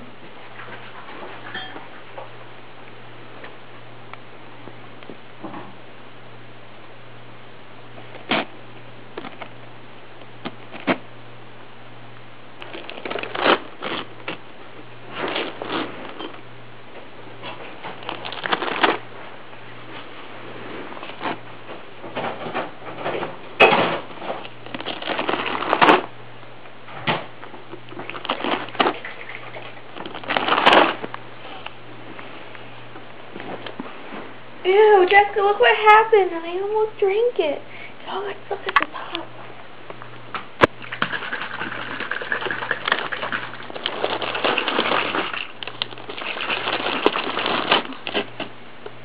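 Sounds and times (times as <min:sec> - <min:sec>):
steady low hum: 0:00.0 - 0:49.0
paper ripping and crinkling: 0:12.6 - 0:14.4, 0:15.1 - 0:16.3, 0:17.9 - 0:19.0, 0:24.6 - 0:26.1, 0:27.9 - 0:31.1, 0:41.3 - 0:48.5.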